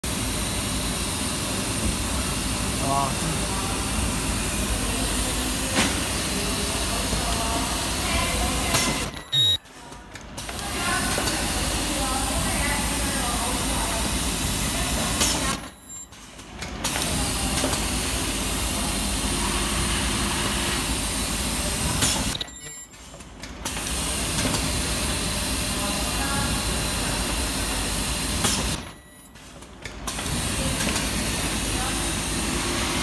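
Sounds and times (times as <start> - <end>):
machine hum and hiss: 0.1 - 9.6, 10.4 - 33.0
welding burst with high squeal: 9.0 - 9.6, 22.4 - 23.0.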